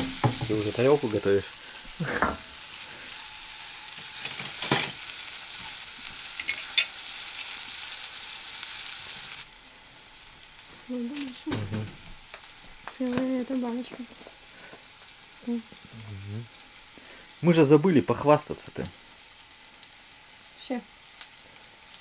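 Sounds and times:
knocks: 0.0s - 0.6s, 11.5s - 12.0s
food sizzling in a pan: 0.0s - 22.0s.

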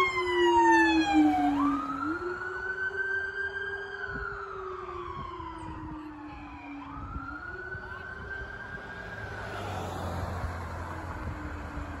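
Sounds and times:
police sirens wailing: 0.0s - 12.0s
car passing: 7.6s - 12.0s.

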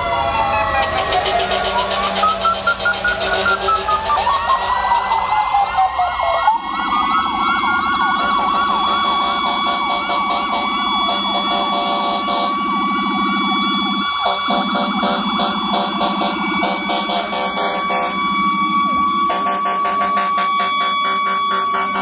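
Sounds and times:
low vehicle rumble: 0.0s - 22.0s
wailing and yelping sirens: 0.0s - 22.0s.

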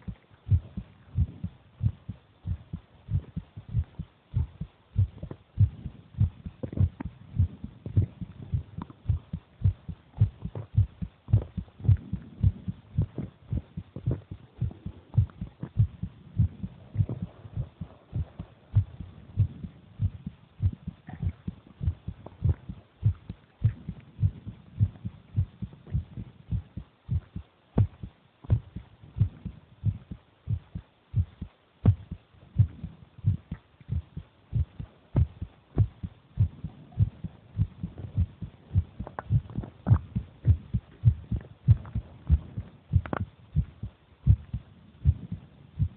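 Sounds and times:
heartbeat thumps: 0.0s - 45.9s.

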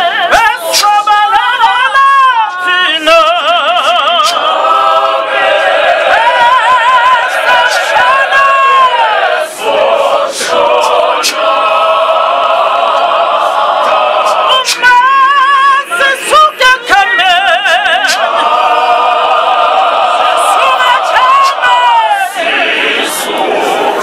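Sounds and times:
congregation singing: 0.0s - 24.0s
voice singing with vibrato: 0.0s - 24.0s.

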